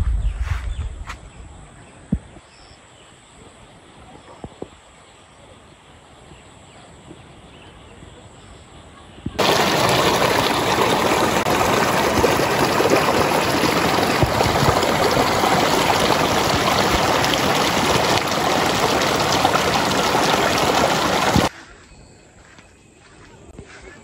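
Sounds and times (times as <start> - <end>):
stream flowing: 9.4 - 21.5.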